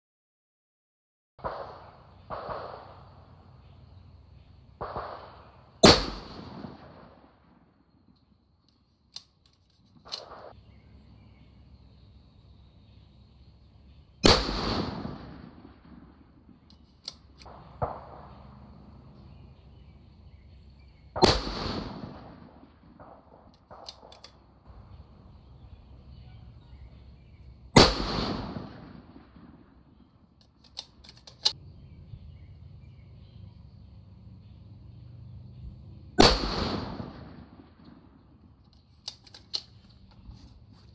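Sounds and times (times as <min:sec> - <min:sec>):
rifle shots: 0:01.4 - 0:03.3, 0:04.8 - 0:07.6, 0:14.2 - 0:18.6, 0:21.1 - 0:24.2, 0:27.7 - 0:29.9, 0:36.2 - 0:38.3
rifle bolt metallic clicks: 0:08.6 - 0:10.5, 0:16.6 - 0:17.5, 0:23.5 - 0:24.4, 0:30.4 - 0:31.6, 0:38.6 - 0:40.2.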